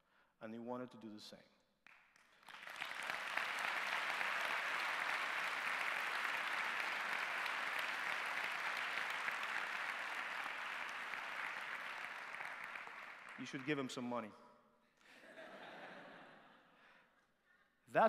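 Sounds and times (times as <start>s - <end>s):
audience applauding: 1.9s - 14.0s.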